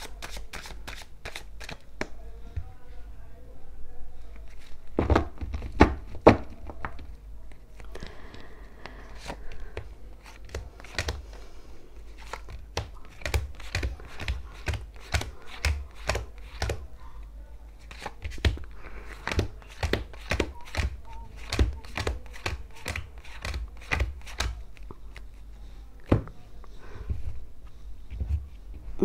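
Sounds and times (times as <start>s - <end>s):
cards slapping on table: 10.2s - 11.3s, 12.2s - 16.8s, 17.9s - 24.6s.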